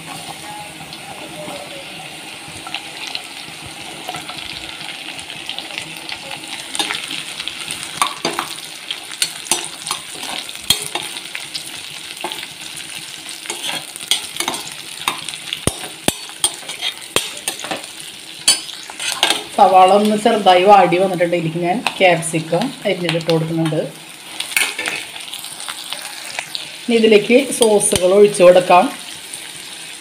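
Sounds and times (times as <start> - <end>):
onions sizzling in oil: 0.0 - 30.0
metal spoon scraping a pan: 6.6 - 11.5, 12.1 - 19.6, 24.4 - 25.2, 27.4 - 28.5.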